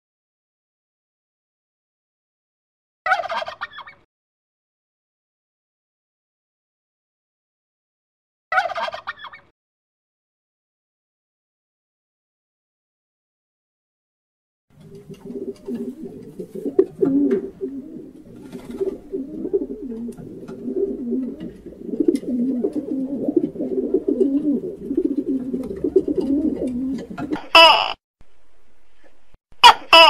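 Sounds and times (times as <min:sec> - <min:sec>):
dove cooing: 0:14.8 - 0:27.9.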